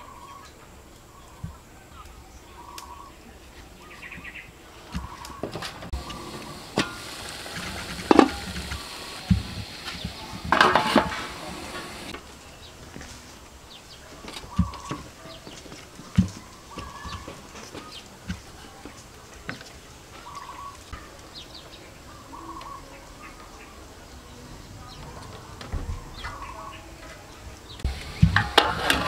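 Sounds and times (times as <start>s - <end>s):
steam hissing: 4.6s - 12.7s, 13.6s - 25.0s, 25.7s - 29.0s
metal pot clattering: 5.0s - 12.2s, 27.9s - 29.0s.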